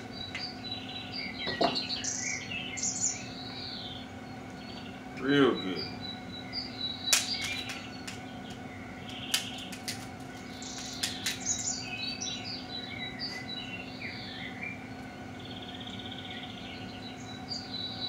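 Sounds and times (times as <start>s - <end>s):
birds chirping and trilling: 0.0s - 18.0s
crab shell cracking by hand: 7.1s - 11.5s.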